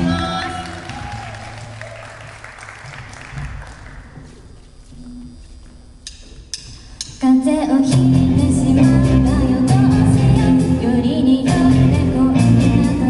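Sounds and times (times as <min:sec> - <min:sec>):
audience applause: 0:00.3 - 0:04.2.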